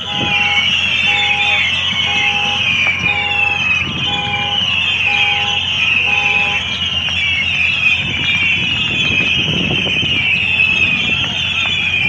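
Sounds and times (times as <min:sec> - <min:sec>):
car alarm horn honking: 0:00.0 - 0:12.0
steady high-pitched din: 0:00.0 - 0:12.0.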